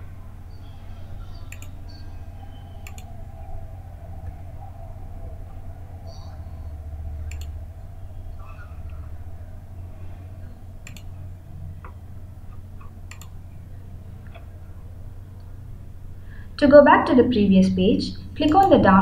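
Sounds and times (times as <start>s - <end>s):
steady low hum: 0.0s - 19.0s
computer mouse clicks: 1.4s - 1.8s, 2.8s - 3.1s, 7.3s - 7.5s, 10.8s - 11.1s, 12.8s - 13.4s.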